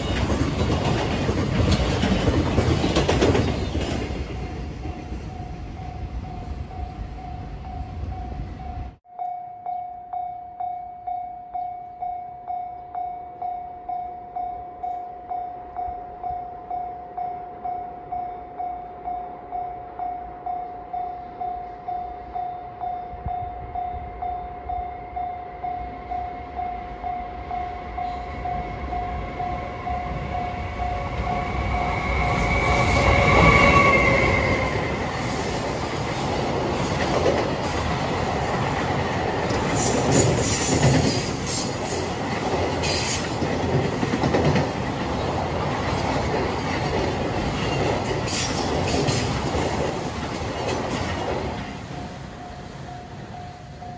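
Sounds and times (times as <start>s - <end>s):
wagons rumbling and wheels clattering: 0.0s - 9.0s, 28.3s - 53.9s
electric locomotive passing: 0.0s - 9.1s, 10.1s - 53.9s
level crossing warning bell: 4.8s - 40.0s, 51.1s - 53.9s.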